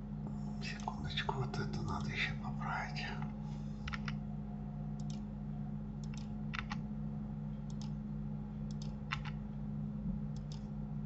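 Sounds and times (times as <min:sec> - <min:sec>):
low hum: 0:00.0 - 0:11.0
mouse and keyboard clicks: 0:03.8 - 0:04.2, 0:05.0 - 0:05.2, 0:06.0 - 0:06.8, 0:07.7 - 0:08.0, 0:08.7 - 0:09.4, 0:10.4 - 0:10.7.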